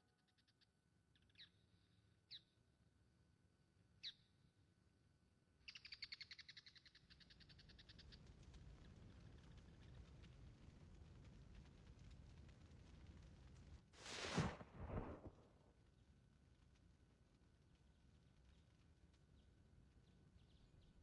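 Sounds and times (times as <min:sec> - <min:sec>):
small bird chirps: 0:05.6 - 0:07.6
low even noise: 0:14.0 - 0:15.6.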